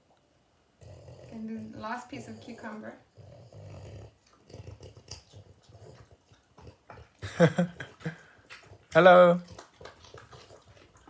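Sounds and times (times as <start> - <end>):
dog crunching cucumber: 4.2 - 11.0.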